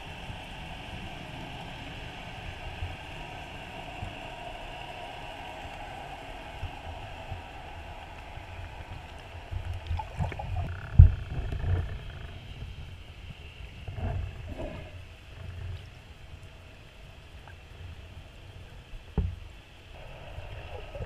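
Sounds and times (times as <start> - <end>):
water moving underwater: 8.7 - 12.8, 13.7 - 18.1.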